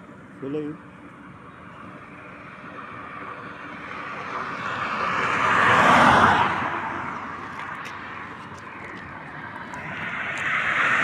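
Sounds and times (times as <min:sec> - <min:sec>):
vehicle passing at speed: 0:02.8 - 0:11.0.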